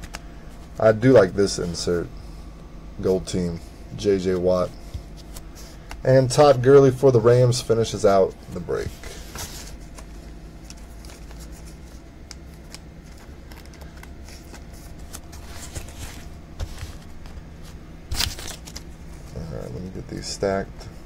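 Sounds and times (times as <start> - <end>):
steady low hum: 0.0 - 21.0
trading cards shuffled: 4.2 - 6.7, 7.9 - 19.5.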